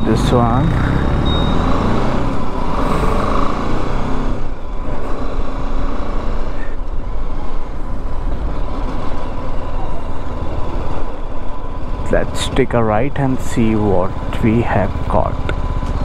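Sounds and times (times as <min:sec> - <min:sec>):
road and wind noise: 0:00.0 - 0:16.0
motorcycle engine running: 0:07.7 - 0:16.0.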